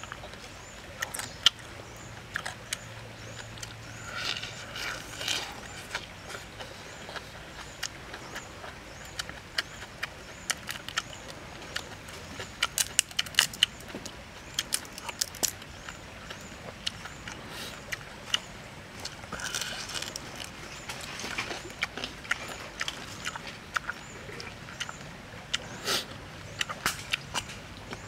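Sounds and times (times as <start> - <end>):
shrimp shell cracking: 12.6 - 13.7, 14.6 - 15.6, 19.3 - 21.3.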